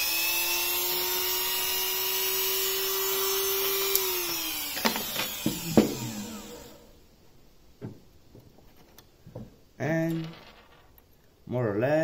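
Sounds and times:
rotary tool whining: 0.0s - 7.0s
sharp clicks and knocks: 7.8s - 11.2s.

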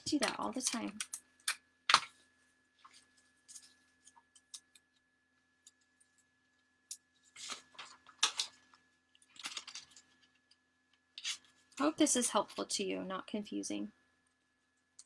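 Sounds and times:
paper rustling and scraping: 7.2s - 8.7s, 9.3s - 10.4s.

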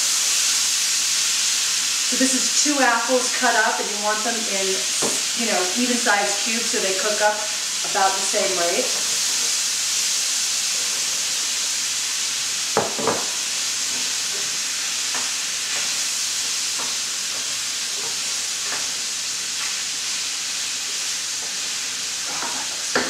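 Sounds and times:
food sizzling in a pan: 0.0s - 23.0s
sharp knocks on pan: 12.8s - 13.3s.

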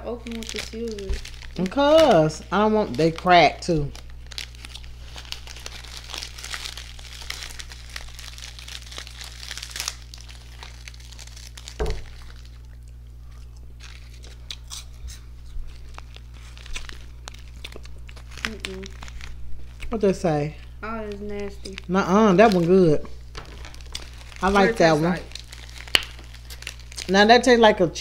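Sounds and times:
candy wrappers crinkling: 0.0s - 27.8s
thump: 11.8s - 12.0s.

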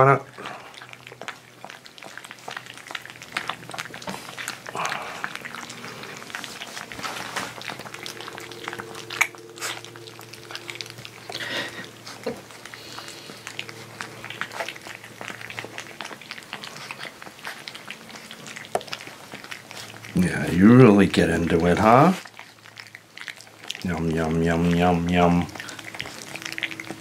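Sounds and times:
puppies chewing and lapping: 0.0s - 27.0s.

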